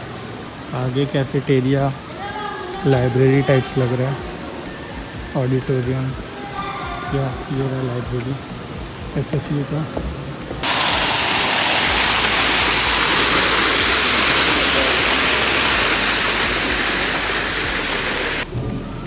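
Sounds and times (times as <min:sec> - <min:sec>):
fountain water splashing: 0:00.0 - 0:10.0, 0:10.6 - 0:18.5.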